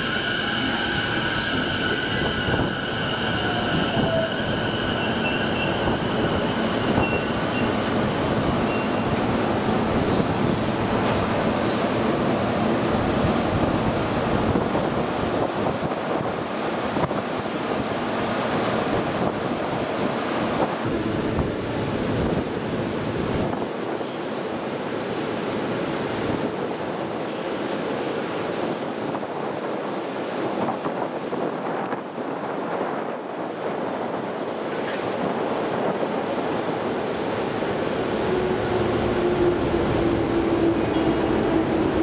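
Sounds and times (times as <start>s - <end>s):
wind buffeting microphone: 0.0s - 24.0s
electric train rumbling: 0.0s - 42.0s.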